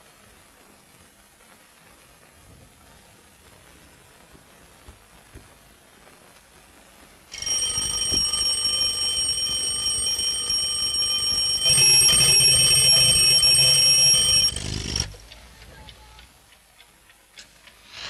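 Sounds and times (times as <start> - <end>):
alarm clock bell ringing: 7.4 - 15.2.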